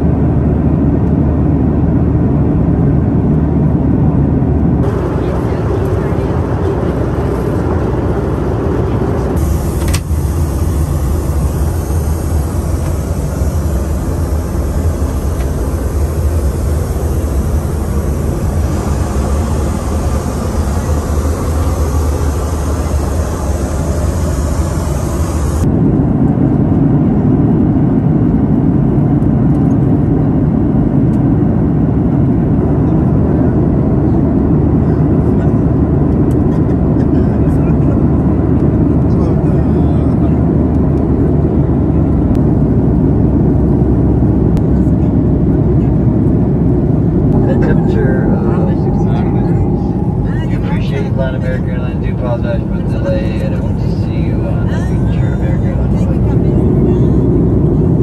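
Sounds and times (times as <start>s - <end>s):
airplane cabin noise: 0.0s - 58.0s
deep engine rumble: 0.0s - 58.0s
high hiss over low hum: 9.3s - 25.7s.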